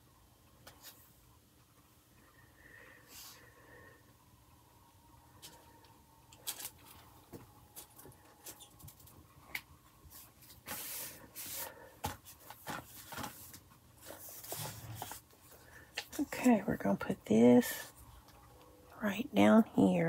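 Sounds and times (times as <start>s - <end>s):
paper rustling: 10.1s - 16.2s.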